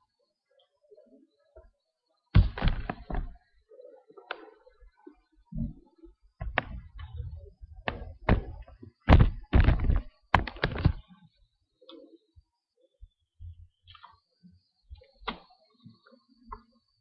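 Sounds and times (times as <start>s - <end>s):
webcam handling thunks and knocks: 8.2s - 11.0s.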